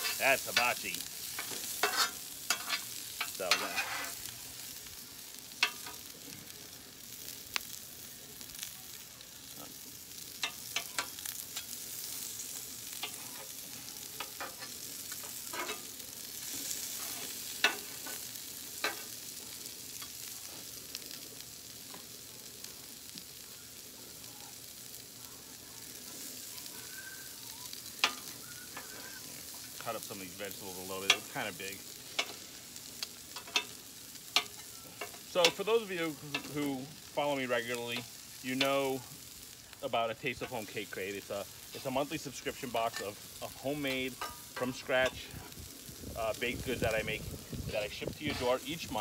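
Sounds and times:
metal spatula scraping and clacking: 0.0s - 4.3s, 14.2s - 15.9s, 44.1s - 45.2s
food sizzling on a griddle: 0.0s - 49.0s.

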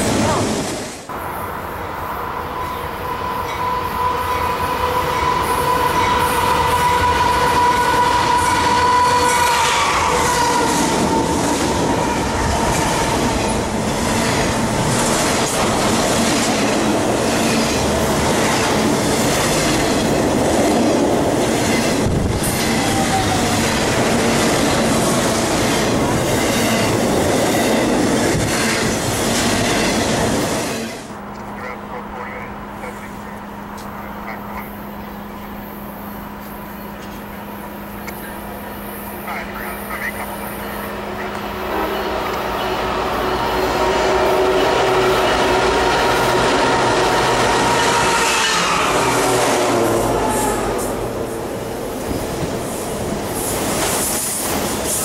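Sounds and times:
locomotive tone: 1.1s - 20.2s, 30.8s - 52.7s
train wheels clattering on rails: 4.2s - 31.1s.

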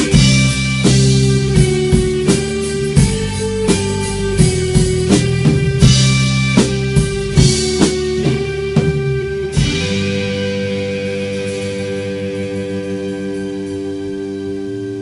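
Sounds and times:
drum hits: 0.0s - 12.0s
band playing held chords: 0.0s - 15.0s.

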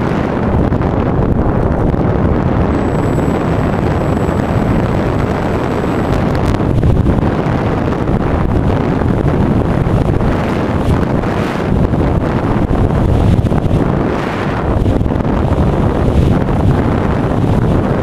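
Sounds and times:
wind roaring over microphone: 0.0s - 18.0s
thin high whine: 2.2s - 8.6s.

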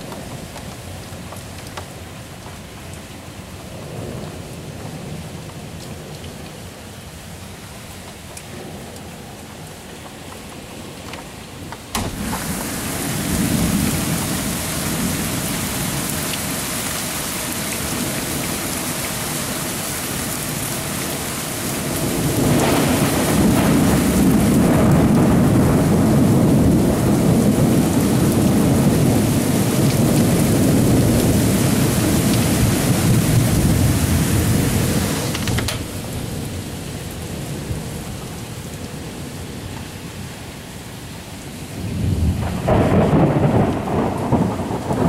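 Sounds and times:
heavy rain: 0.0s - 45.0s
rolling thunder: 11.9s - 16.3s, 21.7s - 38.0s, 41.8s - 45.0s.

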